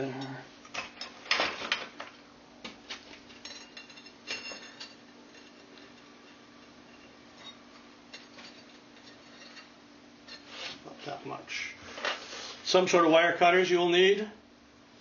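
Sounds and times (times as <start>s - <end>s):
faint steady hum: 0.0s - 15.0s
metallic wire clinks: 3.3s - 10.4s.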